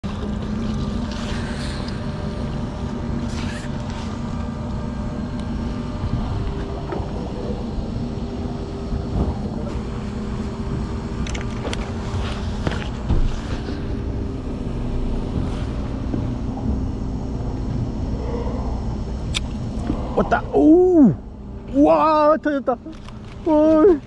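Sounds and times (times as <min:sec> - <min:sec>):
boat engine humming: 0:00.0 - 0:24.0.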